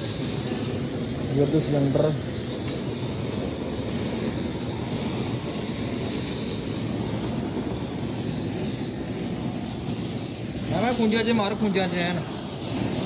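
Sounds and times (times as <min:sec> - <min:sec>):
gas flame hissing: 0:00.0 - 0:13.0.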